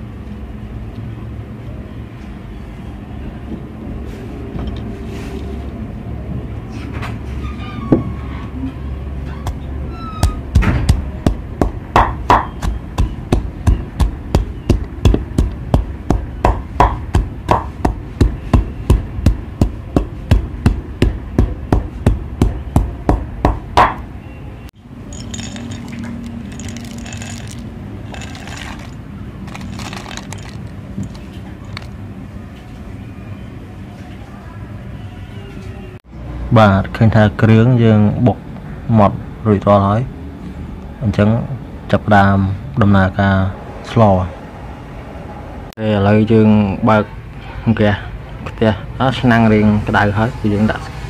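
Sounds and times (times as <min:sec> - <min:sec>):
stone pestle pounding in mortar: 0:10.2 - 0:24.0.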